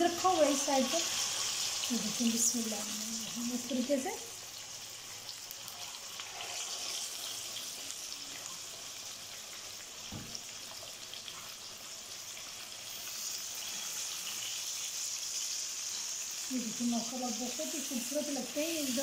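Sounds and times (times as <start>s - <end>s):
chicken sizzling in hot oil: 0.0s - 19.0s
soft knock: 10.1s - 10.4s.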